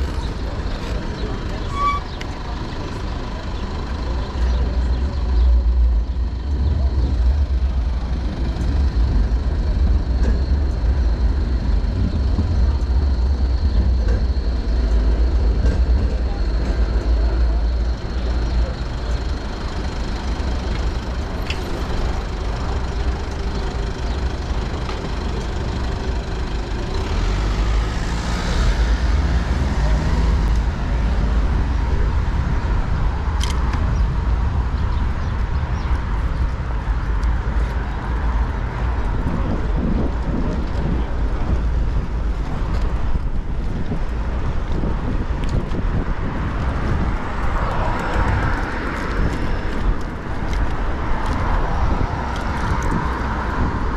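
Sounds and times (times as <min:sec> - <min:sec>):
city traffic: 0:00.0 - 0:53.9
wind buffeting microphone: 0:28.8 - 0:53.9.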